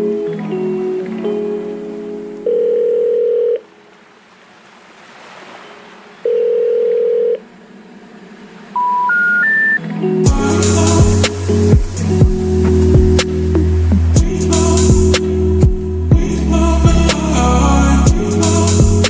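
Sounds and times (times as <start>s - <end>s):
long steady tones: 6.2s - 19.0s
short beeps rising in pitch: 8.8s - 9.8s
beat with deep bass: 10.3s - 17.2s, 18.1s - 19.0s.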